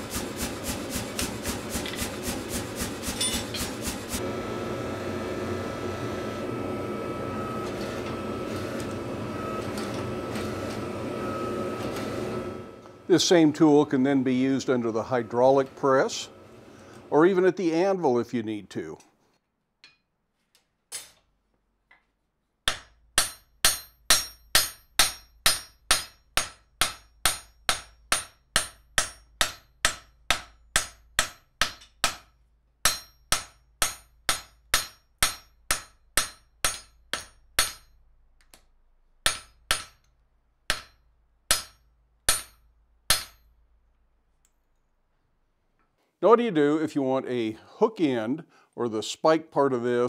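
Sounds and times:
hammer striking hot steel on anvil: 0:00.1 - 0:04.0, 0:22.7 - 0:38.6, 0:39.2 - 0:40.1, 0:40.7 - 0:43.6.

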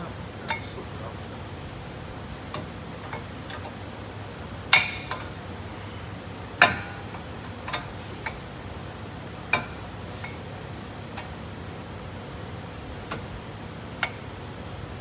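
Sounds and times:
metallic clicks of brake pads: 0:04.7 - 0:05.4, 0:06.6 - 0:08.4, 0:09.4 - 0:10.4, 0:13.0 - 0:13.3, 0:13.9 - 0:14.3.

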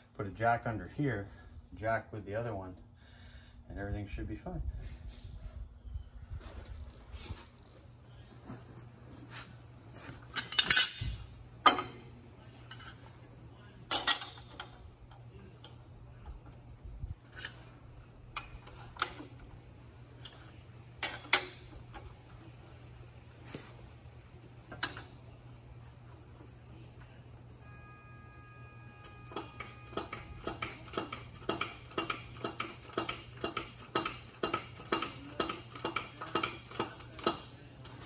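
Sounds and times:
steady low hum: 0:00.0 - 0:38.0
hand tools clanking on steel: 0:10.3 - 0:12.0, 0:13.9 - 0:14.7.

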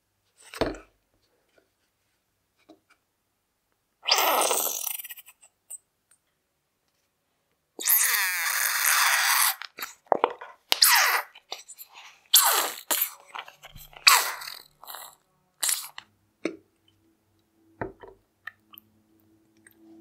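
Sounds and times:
squeeze tube squelching and sputtering: 0:10.7 - 0:16.1.

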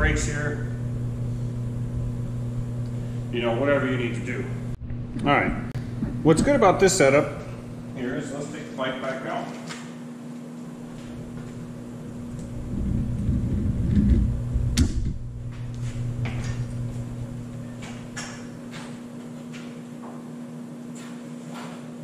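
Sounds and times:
bicycle frame knocking and rumbling: 0:12.6 - 0:15.3.

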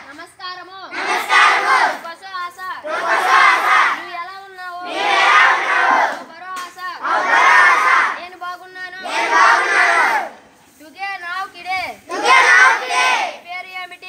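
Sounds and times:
children shouting in unison: 0:00.9 - 0:02.0, 0:02.8 - 0:04.0, 0:04.8 - 0:06.2, 0:07.0 - 0:08.2, 0:09.0 - 0:10.4, 0:12.1 - 0:13.4.

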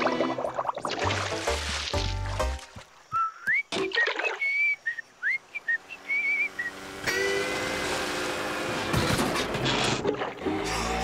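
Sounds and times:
cartoon whistling tune: 0:03.1 - 0:06.8.

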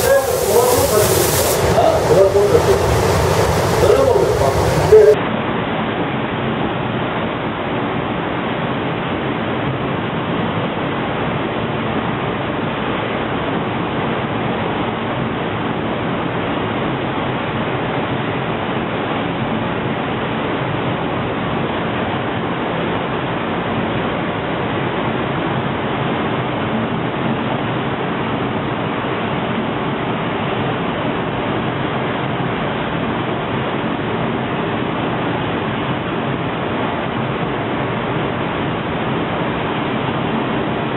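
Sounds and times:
air extraction rushing: 0:00.0 - 0:05.2
spray gun hissing: 0:00.0 - 0:05.2.

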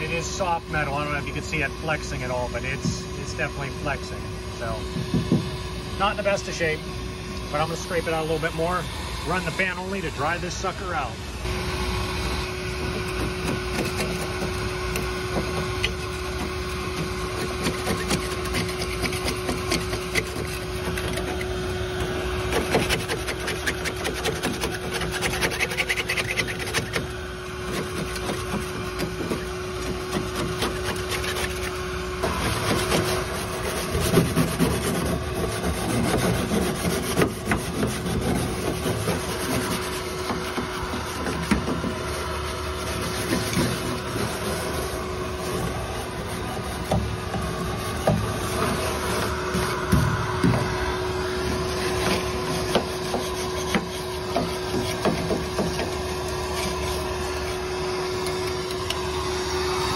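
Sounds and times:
steady hum: 0:00.0 - 0:59.9
putty knife scraping rusty metal: 0:12.8 - 0:50.8, 0:51.4 - 0:57.6.

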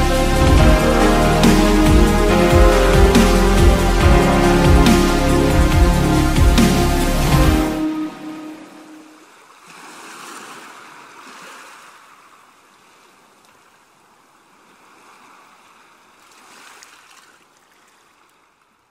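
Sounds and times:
background music: 0:00.0 - 0:09.3
sea surf washing: 0:00.0 - 0:12.0.

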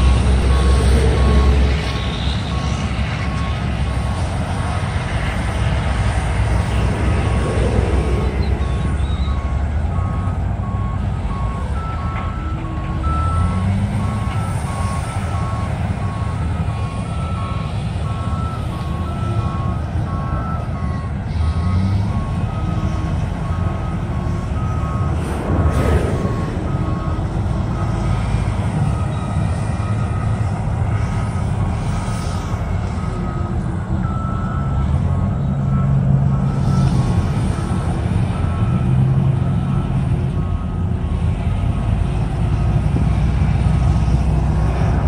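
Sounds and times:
backup alarms beeping: 0:00.0 - 0:05.6, 0:06.3 - 0:41.4
diesel engines running: 0:00.0 - 0:45.0
whoosh: 0:25.0 - 0:28.1.

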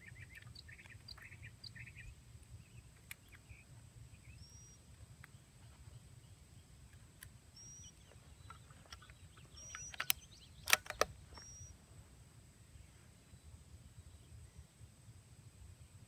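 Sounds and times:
bird chirping: 0:00.0 - 0:11.8
low outdoor rumble: 0:00.0 - 0:16.0
rifle bolt clicking: 0:08.5 - 0:11.6.

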